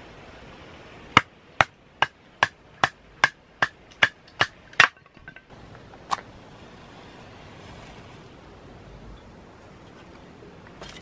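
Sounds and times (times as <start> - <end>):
firewood clacking onto charcoal: 3.9 - 6.2.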